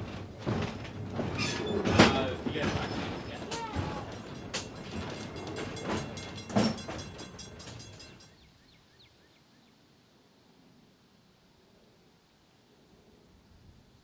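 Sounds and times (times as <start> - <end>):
trolley car rattling and knocking: 0.0 - 8.4.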